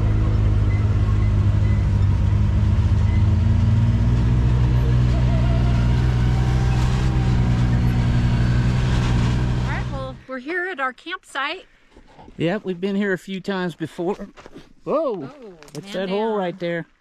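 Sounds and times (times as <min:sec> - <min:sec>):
vehicle engine running: 0:00.0 - 0:10.3.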